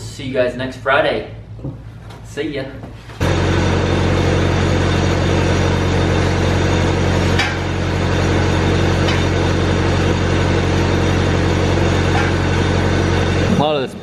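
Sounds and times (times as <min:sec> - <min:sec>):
welding machine engine humming: 0:03.2 - 0:14.0.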